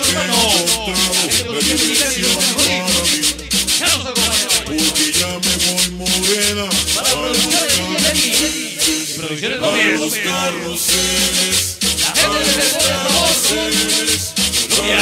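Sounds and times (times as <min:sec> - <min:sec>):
dance music with bass beat: 0:00.0 - 0:09.0.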